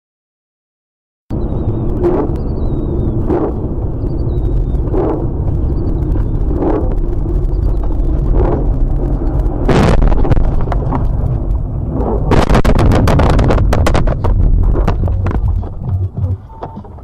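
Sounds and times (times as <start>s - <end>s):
road rumble: 1.3s - 17.0s
clatter of knocks and bangs: 12.4s - 17.0s.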